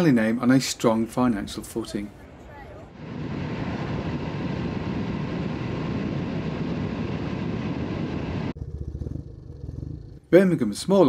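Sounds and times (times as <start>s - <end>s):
wind noise: 2.2s - 9.2s
low rumble: 2.9s - 10.2s
motorcycle engine running: 8.6s - 10.2s.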